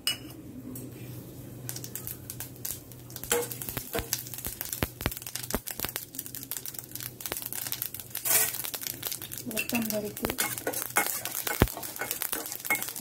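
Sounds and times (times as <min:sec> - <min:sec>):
light sizzle: 0:00.5 - 0:13.0
seeds popping in hot oil: 0:01.6 - 0:13.0
lentils tipped into pan: 0:07.3 - 0:13.0.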